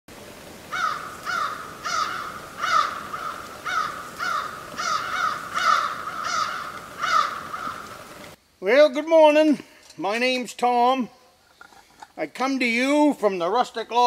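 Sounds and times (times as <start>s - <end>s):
crows cawing: 0.6s - 8.3s.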